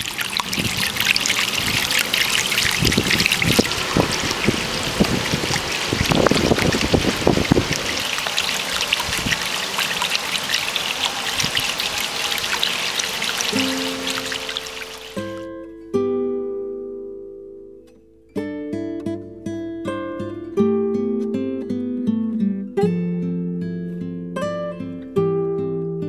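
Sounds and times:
water trickling over pebbles: 0.0 - 15.4.

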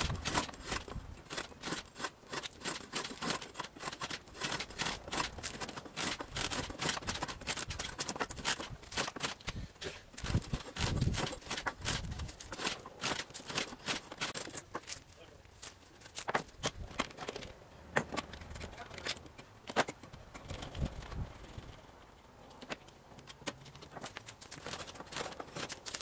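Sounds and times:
hacksaw cutting wood: 0.0 - 15.0, 24.5 - 26.0.

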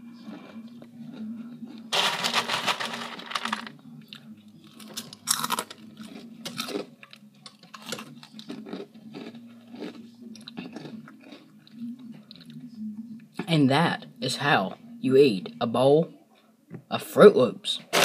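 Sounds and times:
person chewing crunchy cereal: 0.2 - 3.6, 4.7 - 12.5.

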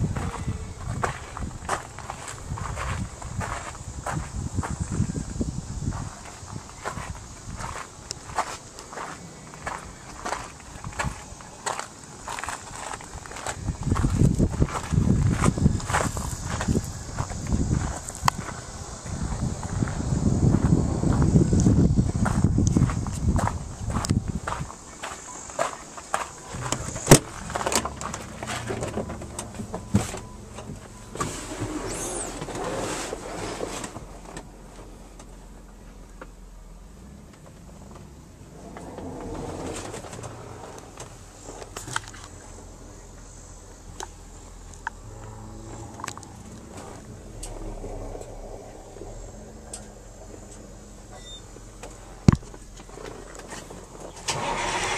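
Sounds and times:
truck door unlatching clunk: 26.6 - 32.6
low steady hum: 34.4 - 54.4.

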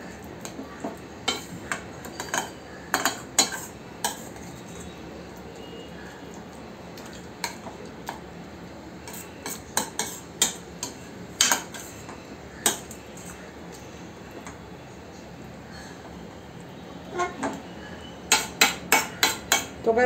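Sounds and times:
spoon scraping through mash: 0.4 - 5.0, 9.0 - 13.8
spoon clinking against pan: 2.1 - 4.4.

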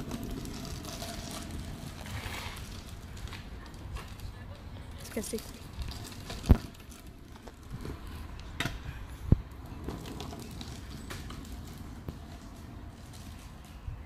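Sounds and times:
scooter rolling over gravel: 0.0 - 14.0.

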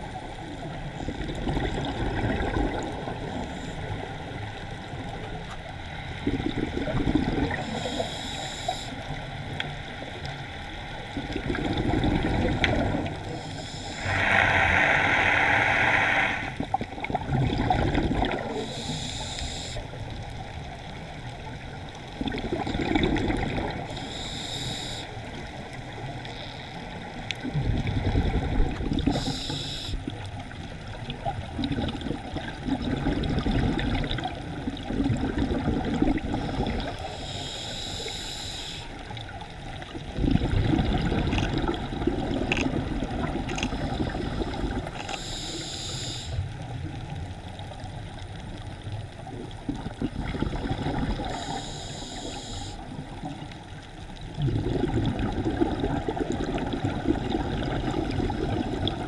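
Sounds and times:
underwater bubbling and gurgling: 0.0 - 59.0
regulator valve hiss: 7.6 - 9.1, 13.3 - 16.6, 18.6 - 19.8, 23.9 - 25.1, 29.1 - 30.1, 36.4 - 39.0, 45.1 - 46.4, 51.3 - 52.8.

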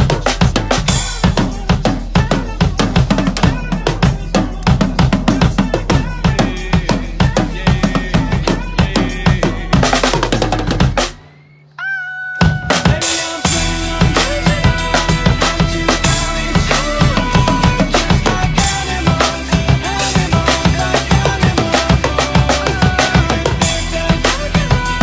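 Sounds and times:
drum kit played hard: 0.0 - 11.2, 12.4 - 25.0
pop backing track: 0.0 - 11.4, 12.4 - 25.0.

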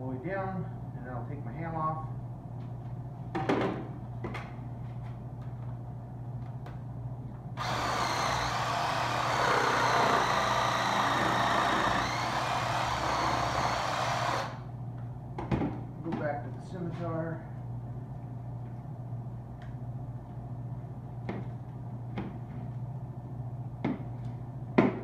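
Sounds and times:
reciprocating saw cutting: 7.6 - 14.6.

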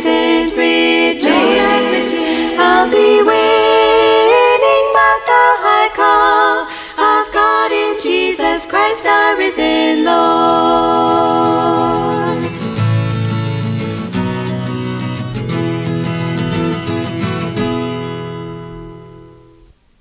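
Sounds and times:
women singing gospel in harmony: 0.0 - 12.6.

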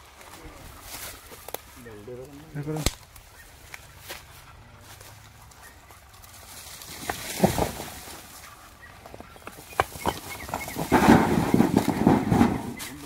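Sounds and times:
rocks scraping and clattering: 6.0 - 13.0.

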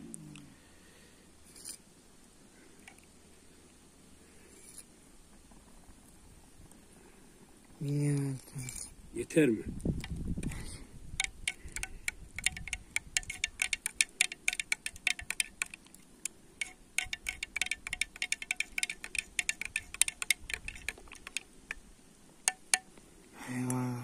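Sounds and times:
teaspoon clinking in ceramic mug: 11.2 - 15.8, 16.6 - 21.8, 22.5 - 22.9.

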